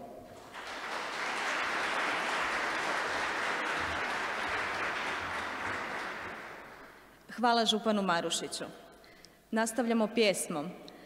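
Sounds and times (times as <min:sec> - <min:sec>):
audience applauding: 0:00.4 - 0:07.1.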